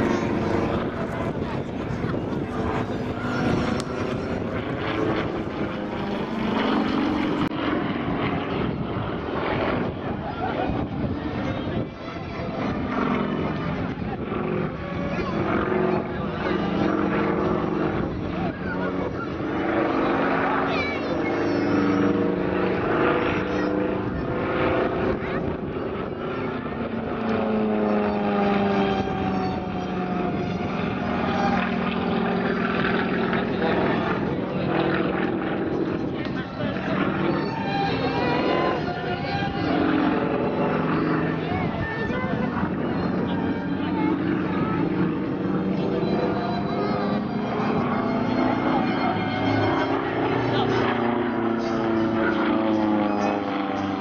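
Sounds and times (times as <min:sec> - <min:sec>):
radial engine and propeller in flight: 0:00.0 - 0:54.0.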